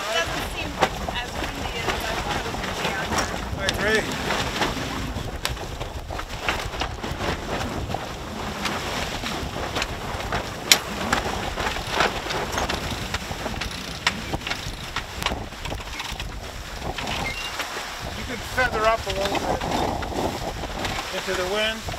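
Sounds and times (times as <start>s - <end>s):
water rushing along hull: 0.0s - 21.9s
wind on microphone: 0.0s - 21.9s.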